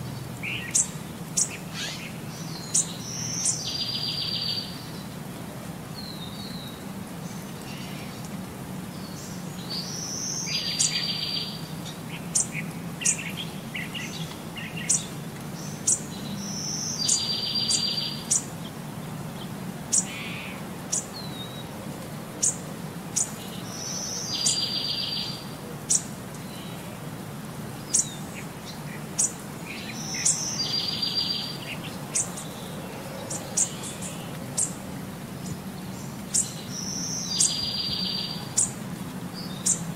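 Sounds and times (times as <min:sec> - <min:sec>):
bird song with buzzy trill: 0:29.2 - 0:34.8, 0:35.4 - 0:38.7.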